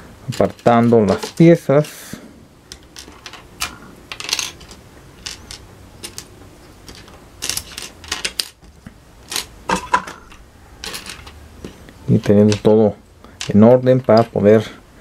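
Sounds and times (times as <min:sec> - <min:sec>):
plastic toy parts clicking: 0:02.7 - 0:08.6, 0:10.2 - 0:12.7.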